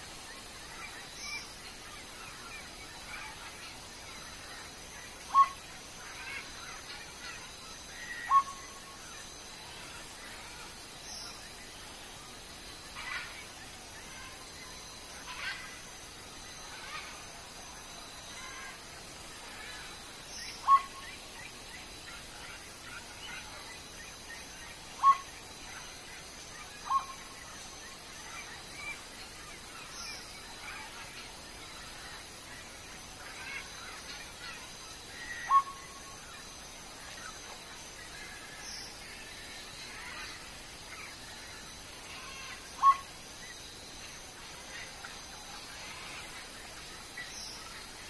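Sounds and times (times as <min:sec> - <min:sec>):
faint bird chirps: 0:00.0 - 0:48.0
loud bird calls: 0:02.2 - 0:11.4, 0:19.4 - 0:43.6.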